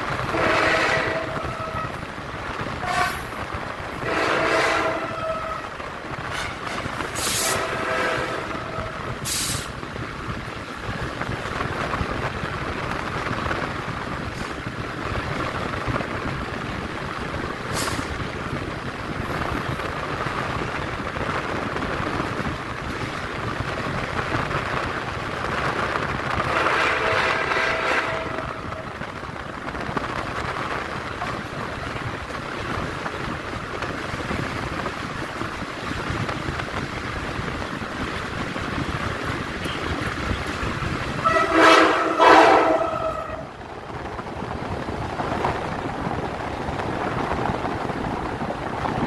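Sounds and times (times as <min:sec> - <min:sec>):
train wheels rumbling on rail: 0:00.0 - 0:49.0
train horn: 0:00.2 - 0:02.0, 0:02.8 - 0:03.4, 0:04.0 - 0:09.4, 0:26.4 - 0:29.0, 0:41.2 - 0:43.5.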